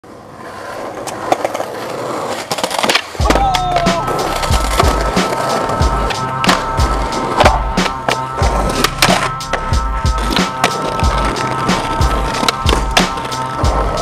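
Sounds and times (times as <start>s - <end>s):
skateboard wheels rolling on pavement: 0.0s - 14.0s
skateboard clacks: 0.4s - 14.0s
music with bass beat: 3.2s - 14.0s.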